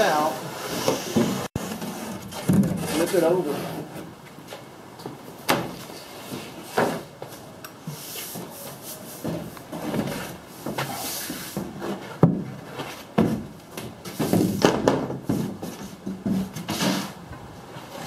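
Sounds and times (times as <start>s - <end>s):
wood scraping on wood: 0.0s - 4.6s.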